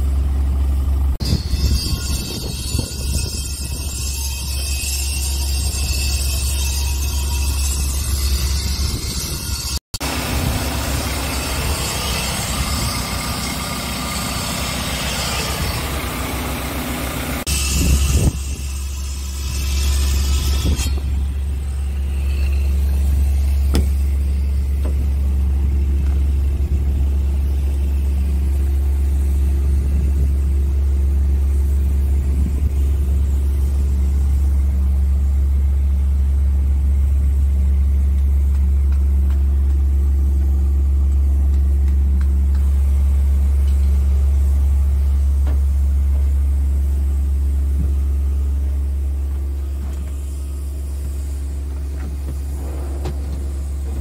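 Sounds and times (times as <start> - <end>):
diesel truck engine idling: 0.0 - 1.2, 10.0 - 17.5
hiss: 49.6 - 54.0.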